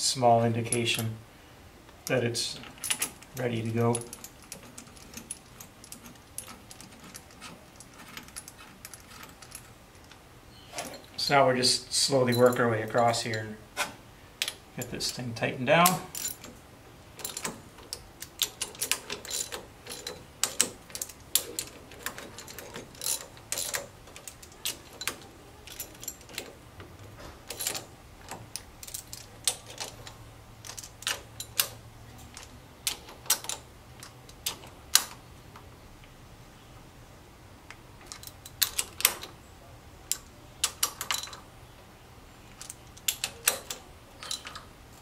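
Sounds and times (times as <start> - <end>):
hand ratchet clicking: 17.2 - 26.6.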